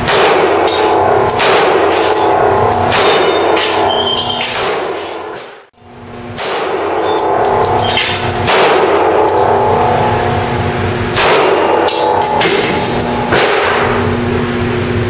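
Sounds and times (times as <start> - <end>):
pistol shots with echo: 0.0 - 2.1, 6.4 - 7.0, 8.4 - 9.3, 11.1 - 12.6
steel plates ringing: 0.4 - 4.5, 7.0 - 10.7, 11.3 - 13.7.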